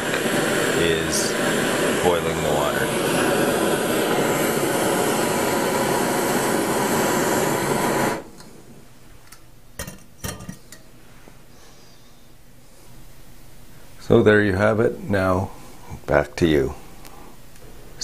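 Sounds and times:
camp stove burner roaring: 0:00.0 - 0:08.7
metal pot clanks: 0:09.8 - 0:10.9.

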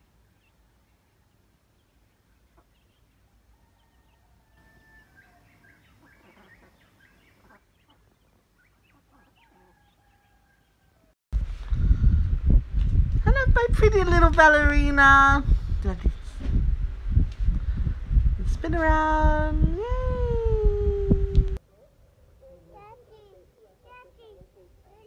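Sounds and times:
hen and chicks clucking and chirping: 0:00.3 - 0:10.9.

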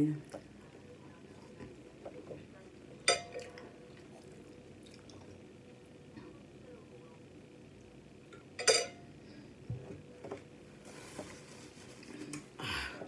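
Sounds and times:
paper napkin rustling: 0:10.8 - 0:12.3.

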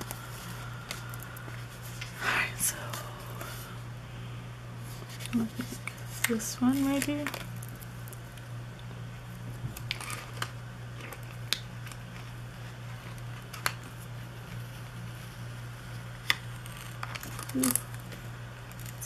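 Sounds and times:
steady low hum: 0:00.0 - 0:19.0
stickers peeling and paper rustling: 0:04.9 - 0:08.5, 0:09.4 - 0:19.0.

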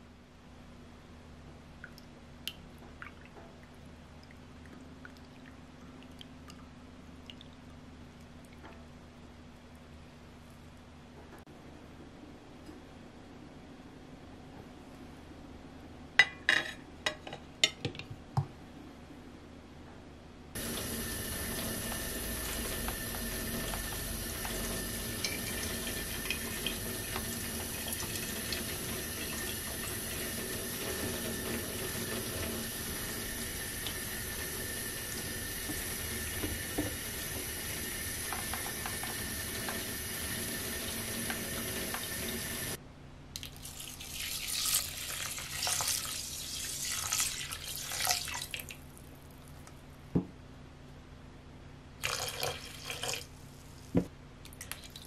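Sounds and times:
water running in a sink: 0:20.6 - 0:42.8, 0:43.4 - 0:48.8, 0:52.0 - 0:53.3, 0:54.6 - 0:55.0
water splashing into a pot: 0:20.6 - 0:42.8, 0:43.4 - 0:48.8, 0:52.0 - 0:53.3, 0:54.5 - 0:55.0.

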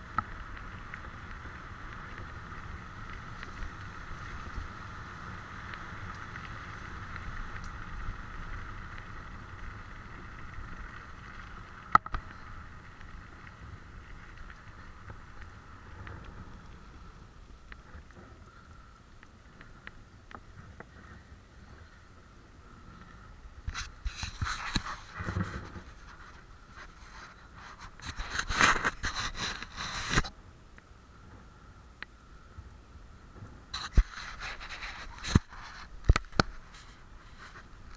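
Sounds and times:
rustling and scraping on microphone: 0:00.0 - 0:30.4, 0:33.3 - 0:37.9
tyres rolling over wet gravel: 0:00.0 - 0:30.4
faint hiss: 0:00.0 - 0:37.9.

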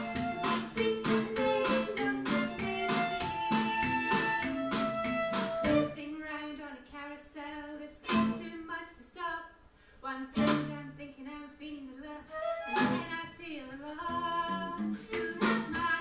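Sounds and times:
strummed guitar: 0:00.0 - 0:06.0, 0:10.4 - 0:11.0, 0:12.5 - 0:13.2, 0:14.1 - 0:16.0
violin: 0:00.0 - 0:06.0, 0:12.3 - 0:13.3, 0:14.6 - 0:16.0.

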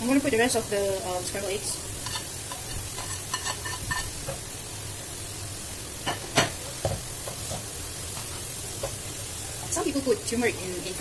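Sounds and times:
rice sizzling in a wok: 0:00.0 - 0:11.0
spatula scraping a plate: 0:02.0 - 0:04.3.

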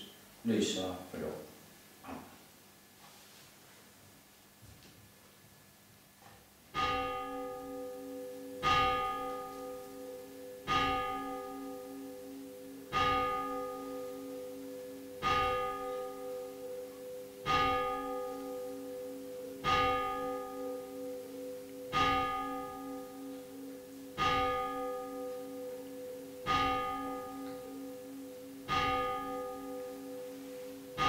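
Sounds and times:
church bell tolling: 0:06.7 - 0:31.0.

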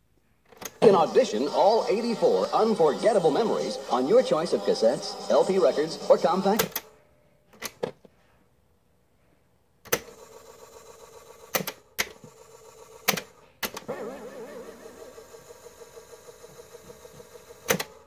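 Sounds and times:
tape motor whirring: 0:00.6 - 0:06.9, 0:09.9 - 0:18.0.

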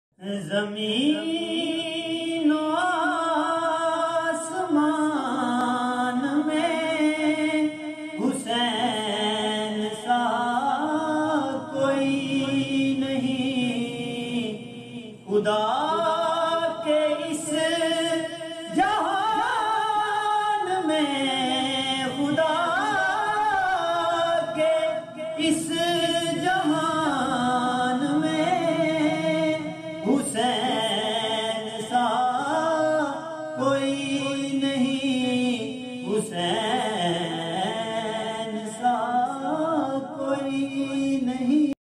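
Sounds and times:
man singing unaccompanied: 0:00.2 - 0:41.8.

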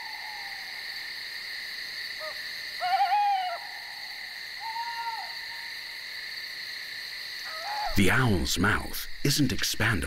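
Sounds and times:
night insect chorus: 0:00.0 - 0:10.0
owl calls: 0:02.2 - 0:05.7, 0:07.4 - 0:08.2.

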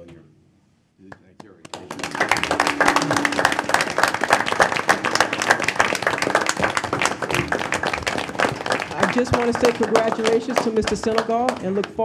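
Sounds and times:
people applauding: 0:01.2 - 0:12.0.

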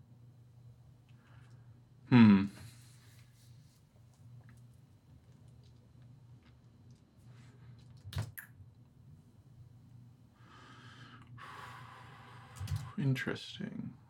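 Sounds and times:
low room hum: 0:00.0 - 0:14.0
soft breath: 0:10.4 - 0:13.0.

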